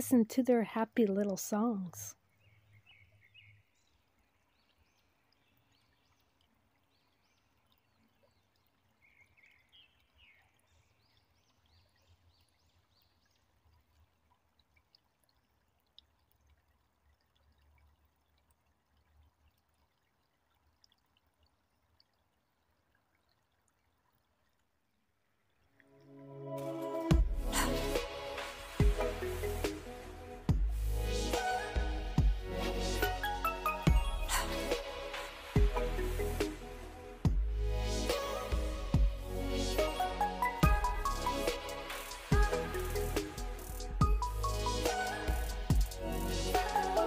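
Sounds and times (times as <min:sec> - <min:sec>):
creek trickling: 0:00.0 - 0:47.0
faint birdsong chirps: 0:02.1 - 0:14.0.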